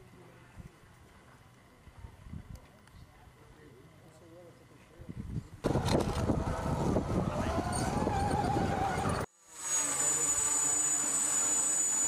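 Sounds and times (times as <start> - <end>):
quadcopter propellers whining: 5.6 - 12.0
rising motor whine: 5.6 - 12.0.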